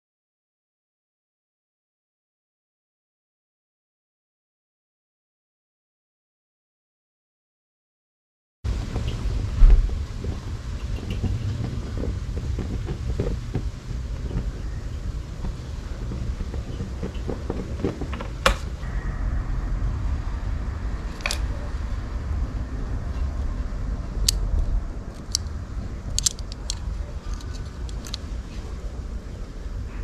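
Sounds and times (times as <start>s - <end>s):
wind on microphone: 8.7s - 30.0s.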